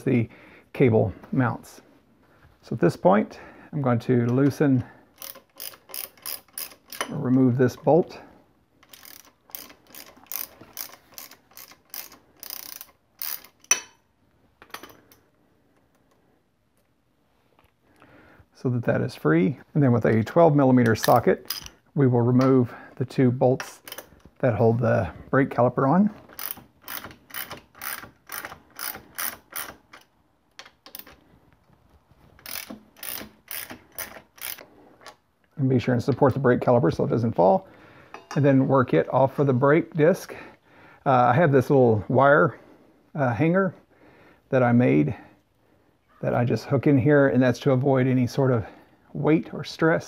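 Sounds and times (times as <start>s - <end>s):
ratchet wrench clicking: 5.2s - 7.1s, 8.8s - 13.9s, 21.0s - 21.7s, 26.3s - 31.2s, 32.4s - 34.6s.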